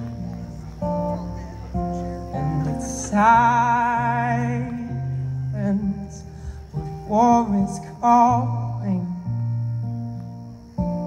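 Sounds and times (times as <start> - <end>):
strummed acoustic guitar: 0.0 - 11.0
man singing: 1.7 - 9.6.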